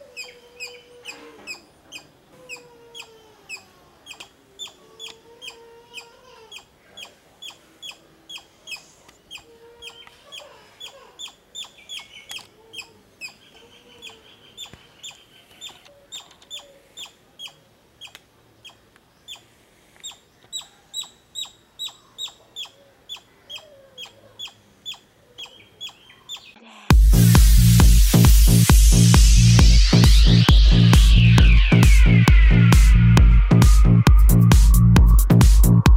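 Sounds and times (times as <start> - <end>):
squirrel chip calls: 0.0 - 26.6.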